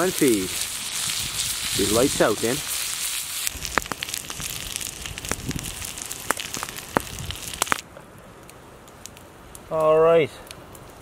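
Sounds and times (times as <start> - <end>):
food sizzling in a pan: 0.0 - 7.8
campfire crackling: 0.0 - 11.0.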